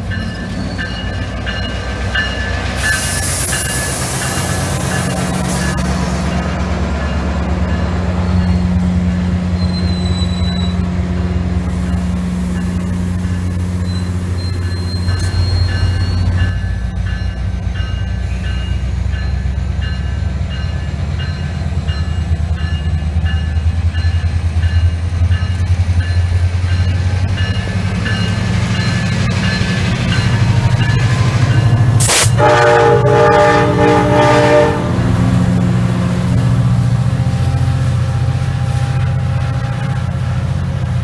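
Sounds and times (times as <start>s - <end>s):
diesel locomotive engine drone: 0.0s - 41.0s
faint high squeals: 9.6s - 10.8s, 13.8s - 16.4s.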